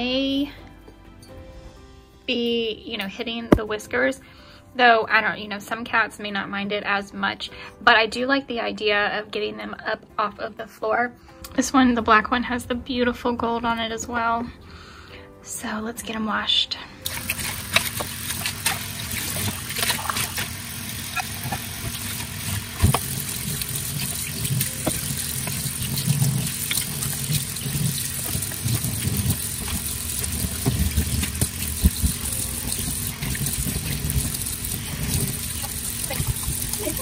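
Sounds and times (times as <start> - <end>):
tap water running into sink: 17.0 - 37.0.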